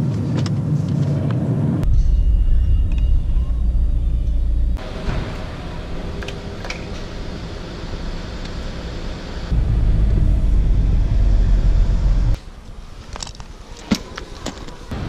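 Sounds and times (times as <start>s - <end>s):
car idling: 2.2s - 12.4s
low rumble inside car: 9.5s - 12.4s.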